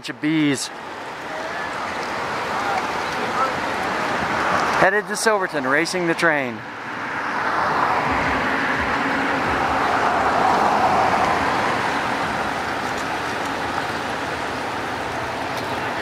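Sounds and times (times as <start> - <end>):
car driving past: 6.6 - 16.0.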